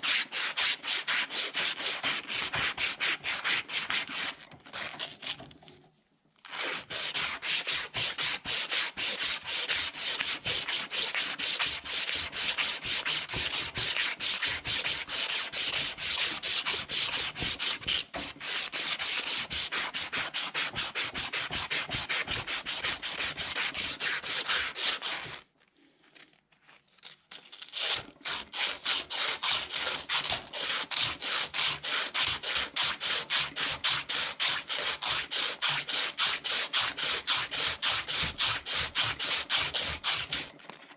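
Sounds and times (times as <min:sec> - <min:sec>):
sandpaper scraping metal shaft: 0:06.5 - 0:25.4, 0:28.3 - 0:40.5.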